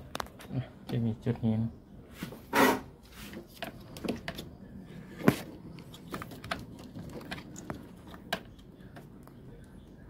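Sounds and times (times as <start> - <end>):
hands rustling wiring: 3.0 - 9.2.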